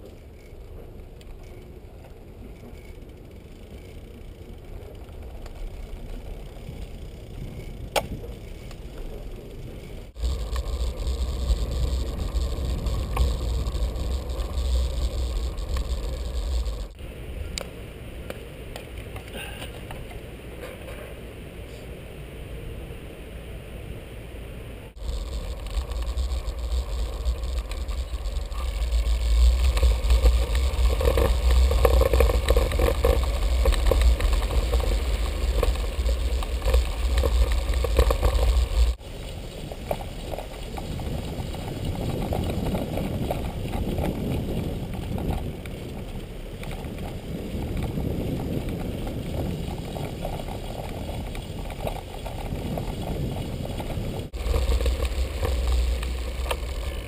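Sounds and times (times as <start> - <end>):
bicycle tyres rolling on pavement: 0.0 - 57.0
wind on microphone: 4.5 - 17.6, 24.9 - 57.0.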